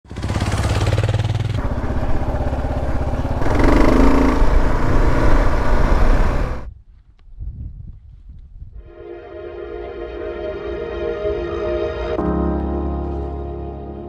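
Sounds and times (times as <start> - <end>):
motorcycle engine running: 0.0 - 6.7.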